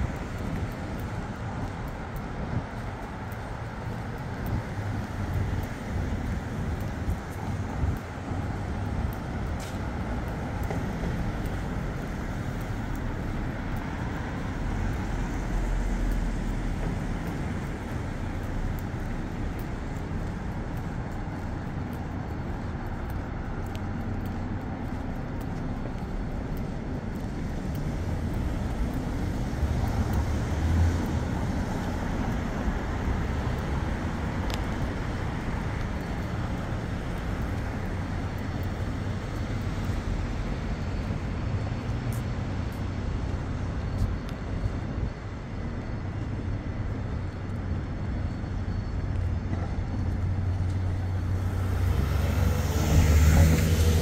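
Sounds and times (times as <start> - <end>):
rumble of passing cars: 0.0 - 54.0.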